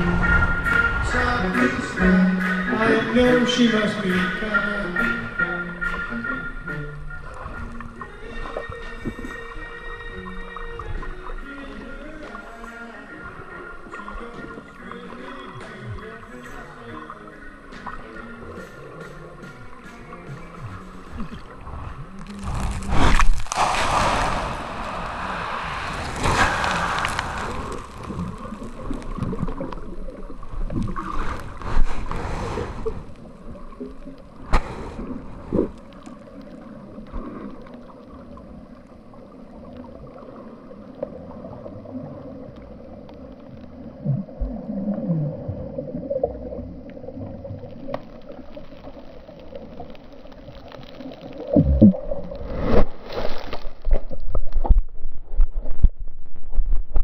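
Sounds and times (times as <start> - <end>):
steady underwater drone: 0.0 - 54.1
water gurgling underwater: 0.0 - 57.0
rumbling: 21.0 - 36.3, 51.4 - 53.0.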